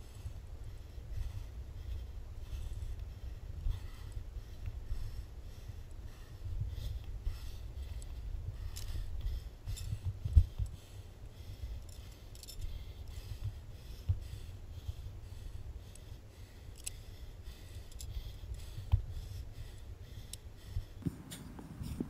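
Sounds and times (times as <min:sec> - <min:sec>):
wind rumble on microphone: 0:00.0 - 0:11.8
carabiners clicking and jingling: 0:07.9 - 0:09.0, 0:09.7 - 0:10.0, 0:11.6 - 0:12.8, 0:16.7 - 0:17.1, 0:17.7 - 0:18.1.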